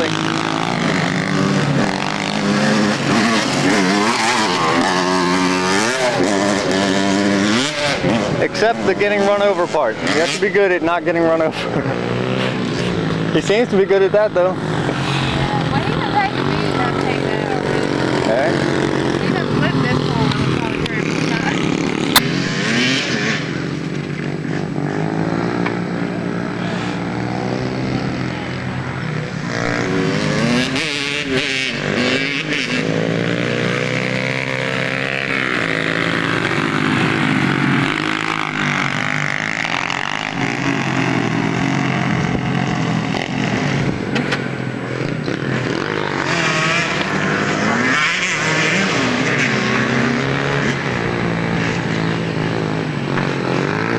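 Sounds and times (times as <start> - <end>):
dirt bike engines revving: 0.0 - 53.9.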